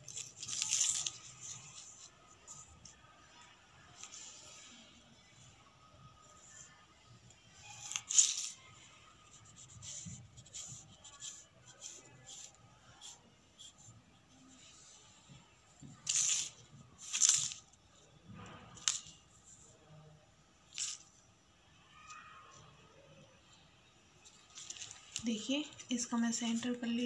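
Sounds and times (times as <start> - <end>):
paper rustling and crinkling: 0.0 - 4.6, 7.6 - 13.8, 15.8 - 17.8, 18.4 - 19.6, 24.2 - 25.9.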